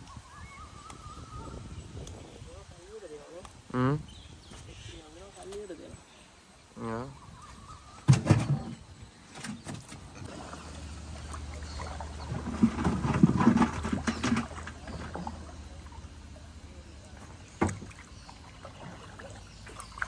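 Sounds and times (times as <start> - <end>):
water splashing and sloshing: 7.5 - 20.0.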